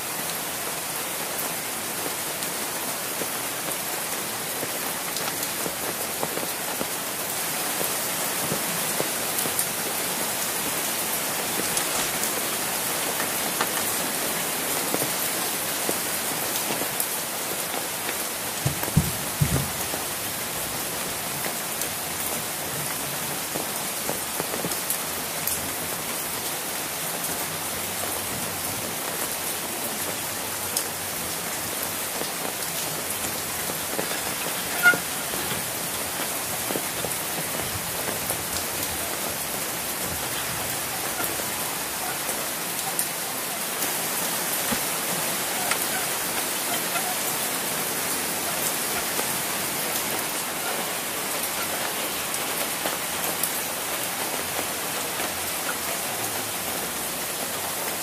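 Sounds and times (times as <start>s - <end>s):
rain on an umbrella: 0.0s - 58.0s
loud knocks: 18.6s - 19.8s.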